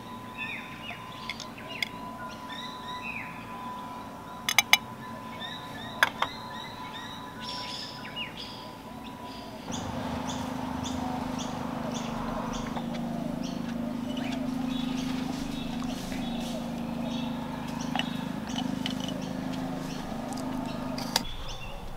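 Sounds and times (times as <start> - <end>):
small birds chirping: 0.0 - 21.9
steady low hum: 8.8 - 21.9.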